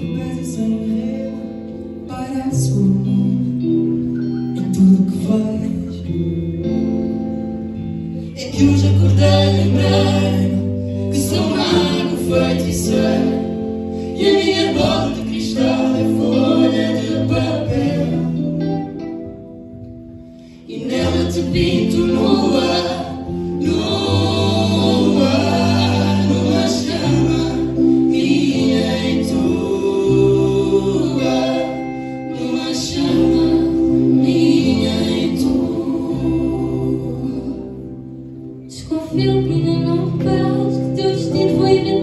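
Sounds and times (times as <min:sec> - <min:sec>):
electric guitar: 0:00.0 - 0:42.0
keyboard: 0:00.0 - 0:42.0
voices singing together: 0:08.4 - 0:19.1, 0:20.6 - 0:42.0.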